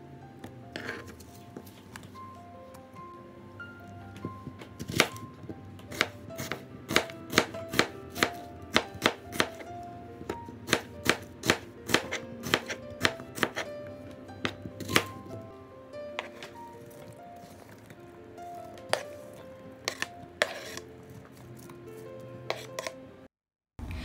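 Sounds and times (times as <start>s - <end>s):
background music: 0.0s - 23.3s
knife chopping on plastic board: 4.6s - 5.2s, 5.9s - 9.7s, 10.3s - 13.7s, 14.4s - 15.2s, 16.2s - 16.6s, 18.8s - 19.2s, 19.8s - 20.8s, 22.5s - 23.0s.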